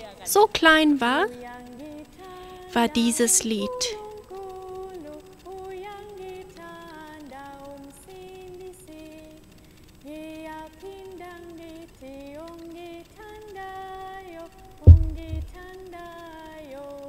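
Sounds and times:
person singing children's song: 0:00.0 - 0:06.4.

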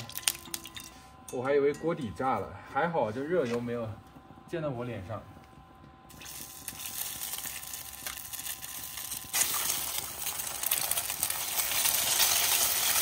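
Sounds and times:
egg frying: 0:00.0 - 0:01.0, 0:06.1 - 0:13.0
faint steady whine: 0:00.0 - 0:13.0
oil sizzling in a wok: 0:06.1 - 0:13.0.

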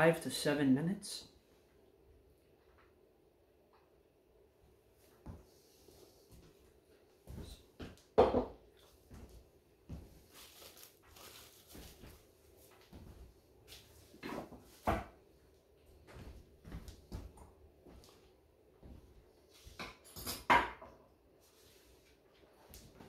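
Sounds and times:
kitchenware knocks and clunks: 0:08.2 - 0:08.6, 0:19.7 - 0:21.1.

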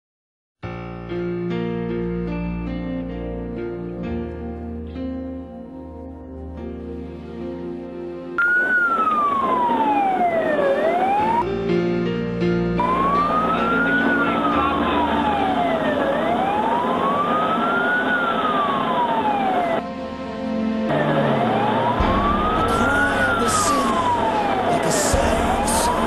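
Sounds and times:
music: 0:00.6 - 0:26.0
fire engine wail siren: 0:08.4 - 0:12.0, 0:12.7 - 0:26.0
truck engine: 0:08.5 - 0:26.0.

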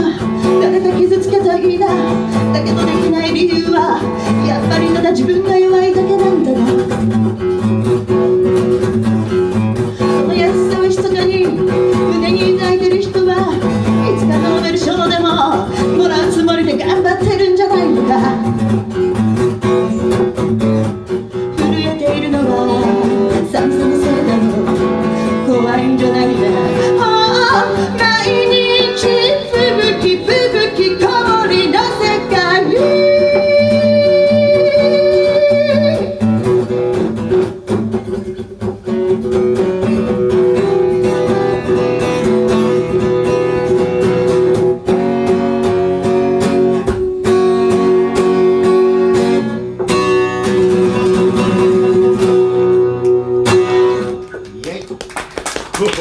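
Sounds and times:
woman singing: 0:00.0 - 0:07.0, 0:09.9 - 0:18.9, 0:21.5 - 0:36.6
strummed acoustic guitar: 0:00.0 - 0:54.6.

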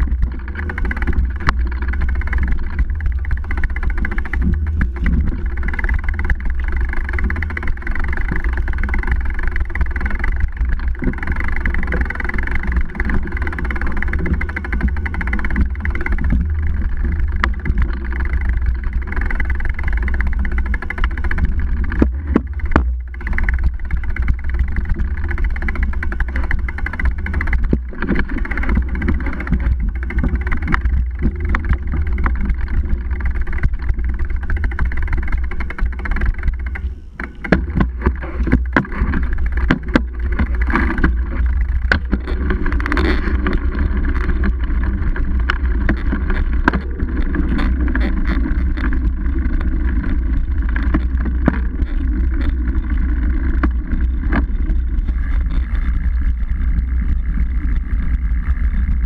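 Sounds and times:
bike jolting clicks and knocks: 0:00.0 - 0:54.5
low rumble of vibration and wind: 0:00.0 - 0:59.0.

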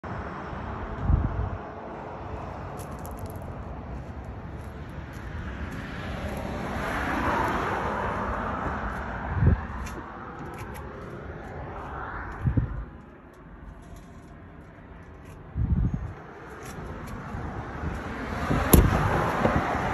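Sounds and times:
road traffic going by: 0:00.0 - 0:19.9
wind bumps on microphone: 0:00.9 - 0:01.7, 0:05.2 - 0:13.2, 0:15.4 - 0:19.9.

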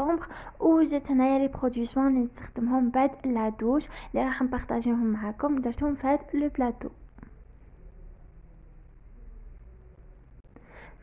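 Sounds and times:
faint low hum: 0:00.0 - 0:11.0
soft intake of breath: 0:10.5 - 0:11.0.

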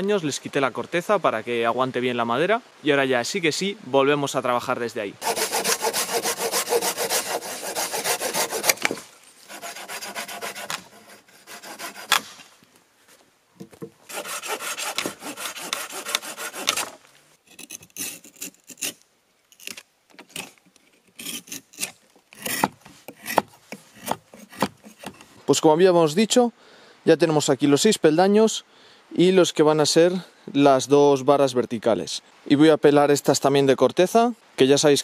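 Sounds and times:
hand saw cutting branch: 0:05.2 - 0:12.5, 0:14.0 - 0:19.0, 0:19.6 - 0:25.3
knife scraping bark off wood: 0:05.2 - 0:12.5, 0:14.1 - 0:25.3.

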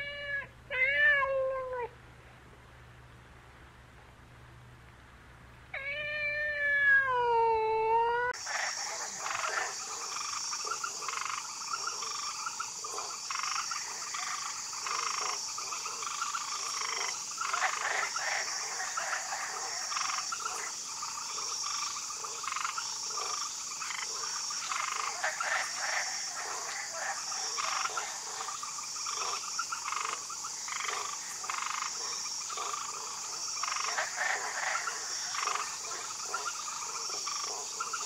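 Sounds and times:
cat meowing: 0:00.0 - 0:01.9, 0:05.8 - 0:08.3
chorus of calling animals: 0:05.8 - 0:38.0.

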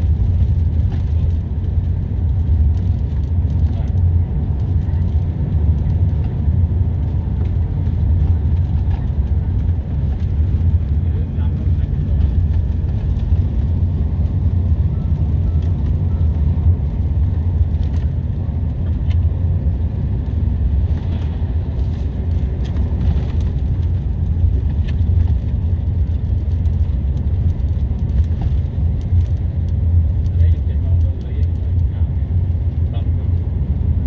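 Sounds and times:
vehicle engine and tyre rumble: 0:00.0 - 0:34.0.

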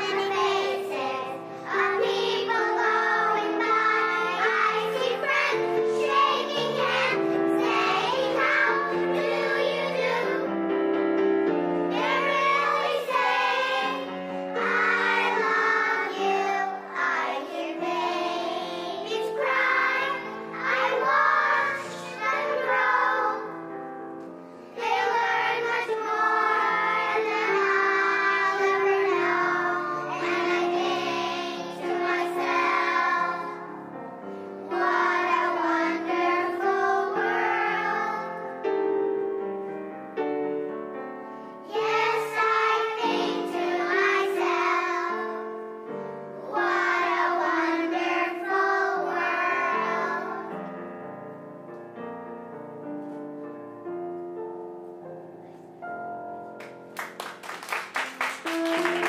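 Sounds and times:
children singing together: 0:00.0 - 0:10.8, 0:11.8 - 0:23.8, 0:24.7 - 0:33.9, 0:34.6 - 0:38.5, 0:41.6 - 0:50.7.

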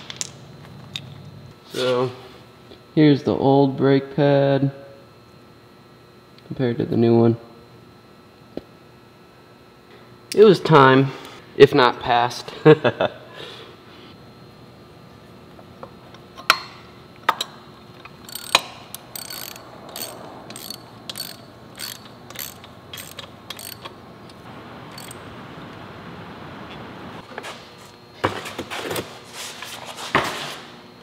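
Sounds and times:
socket ratchet clicking: 0:18.2 - 0:25.2.

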